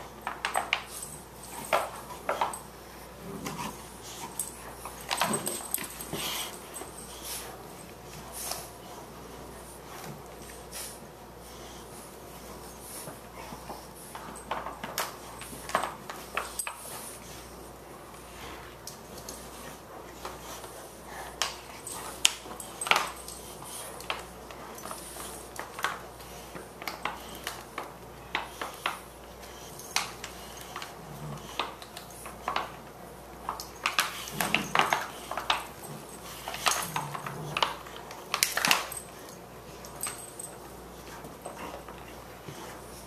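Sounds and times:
dogs growling: 2.3s - 7.4s, 34.2s - 39.0s.

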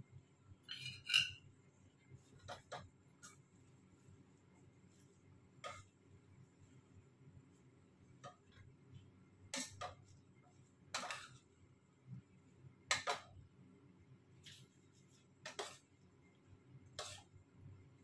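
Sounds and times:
spoon clinking on metal pot: 0.7s - 1.4s.

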